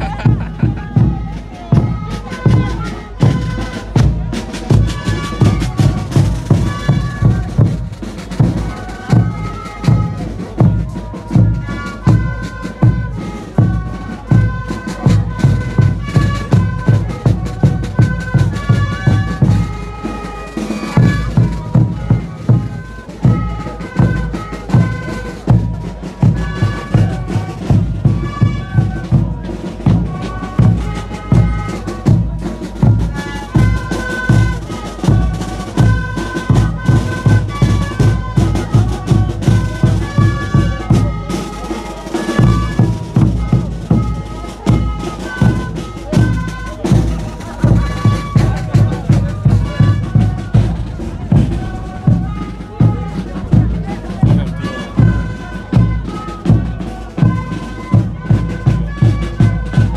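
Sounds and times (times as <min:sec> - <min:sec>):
bass drums beating: 0:00.0 - 0:19.8, 0:42.5 - 0:59.9
wind instruments playing melody: 0:00.0 - 0:59.9.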